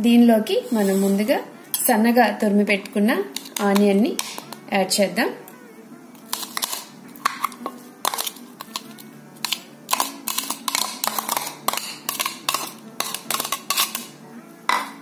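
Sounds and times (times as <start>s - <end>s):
metal spoon scraping glass bowl: 6.3s - 14.1s.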